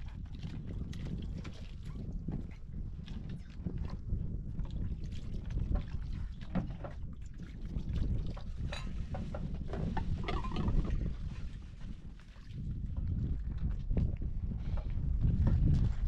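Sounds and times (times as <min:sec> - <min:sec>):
wind on microphone: 0:00.0 - 0:16.0
water pouring over plates: 0:10.0 - 0:11.2
dishes clinking: 0:10.2 - 0:10.9.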